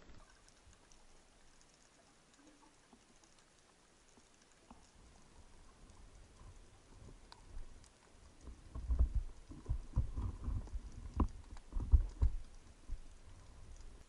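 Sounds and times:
faint sharp clicks: 0.0s - 14.0s
muffled underwater thumps: 8.5s - 13.1s.

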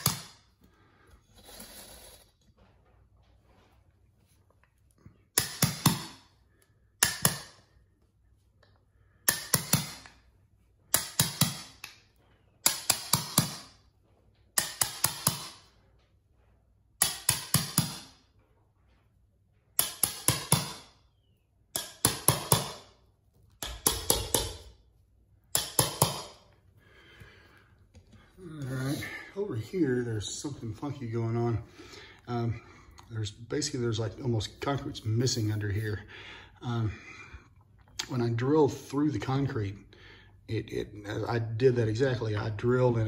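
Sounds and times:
hammer striking metal blade: 14.6s - 15.7s, 17.0s - 18.2s, 19.8s - 20.9s, 21.8s - 22.9s, 25.5s - 26.4s.

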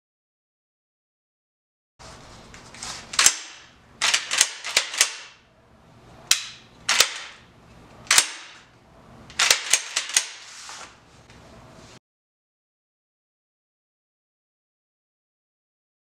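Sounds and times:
shotgun action metallic clacks: 3.2s - 5.4s, 6.3s - 7.4s, 8.1s - 8.6s, 9.4s - 10.4s.

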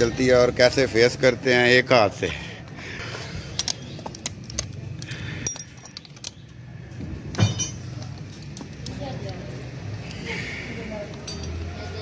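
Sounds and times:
metal tools clinking: 3.4s - 6.6s, 7.3s - 8.7s, 11.1s - 12.0s
metallic clank: 7.3s - 7.9s.

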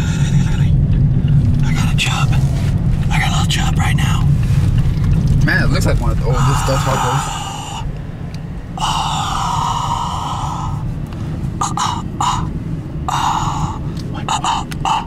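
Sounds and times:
car cabin rumble: 0.0s - 15.0s
person breathing and gasping: 11.6s - 12.5s.

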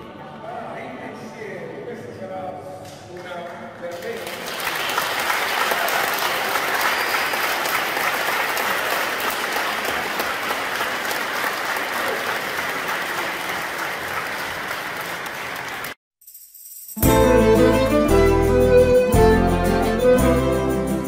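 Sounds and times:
congregation applauding: 3.2s - 16.0s.

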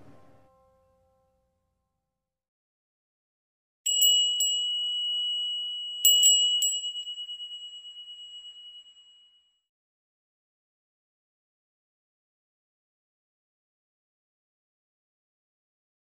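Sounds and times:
small high-pitched bell strikes: 3.9s - 9.7s.

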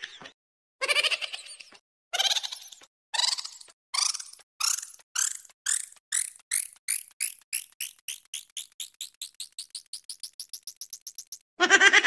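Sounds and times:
short high chirps: 4.0s - 11.4s.

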